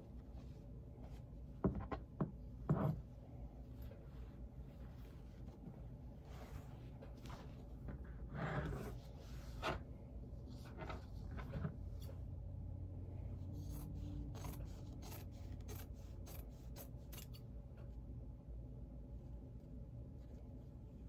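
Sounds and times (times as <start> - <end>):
cloth rustling: 2.9 - 12.1
scissors snipping fabric: 13.6 - 17.5.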